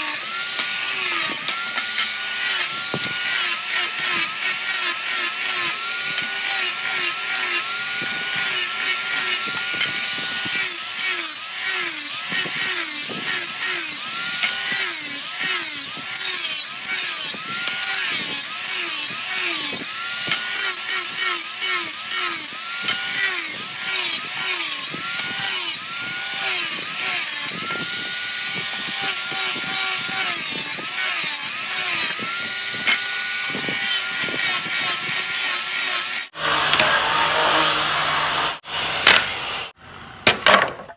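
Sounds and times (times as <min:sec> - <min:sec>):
gritty sanding hiss: 0:00.0 - 0:39.8
angle grinder motor whine: 0:00.0 - 0:40.4.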